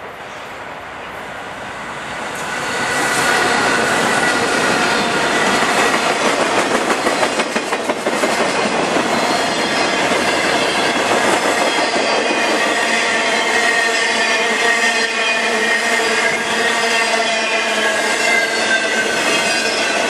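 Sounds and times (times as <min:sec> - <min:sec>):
diesel locomotives passing: 0:00.0 - 0:20.0
high wheel squeal: 0:09.1 - 0:20.0.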